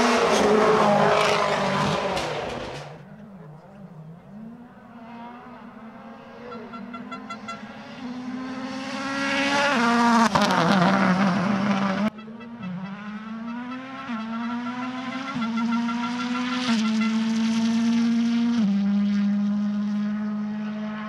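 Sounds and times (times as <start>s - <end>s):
rally car engine accelerating: 0.0s - 21.0s.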